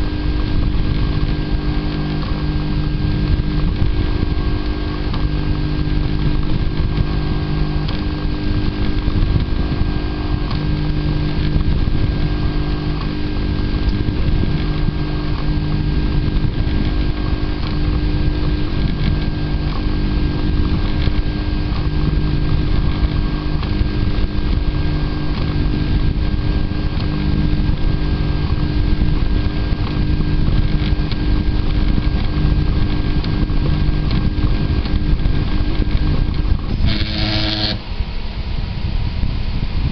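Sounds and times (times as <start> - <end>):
steady mechanical hum: 0.0 - 39.9
stepper motors humming: 0.0 - 39.9.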